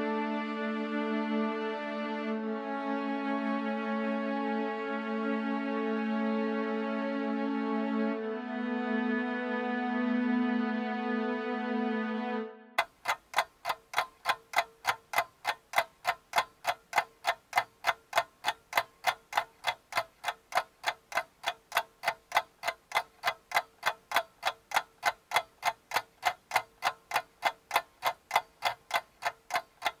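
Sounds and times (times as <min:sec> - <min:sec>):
rapid clock-like ticking: 0:12.8 - 0:30.0.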